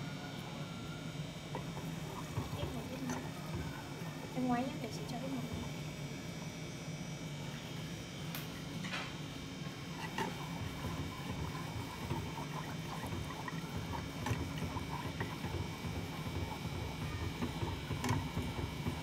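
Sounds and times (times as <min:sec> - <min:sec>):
chopsticks stirring in a saucepan: 0:01.5 - 0:05.7, 0:09.6 - 0:19.0.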